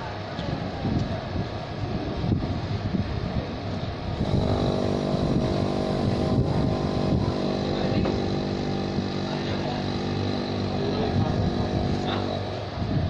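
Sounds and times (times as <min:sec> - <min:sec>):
motor humming: 0:04.2 - 0:12.8.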